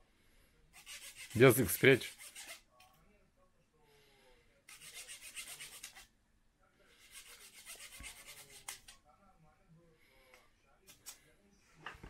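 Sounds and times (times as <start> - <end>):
hand saw cutting wood: 0.8 - 2.6, 4.7 - 6.0, 7.0 - 8.8.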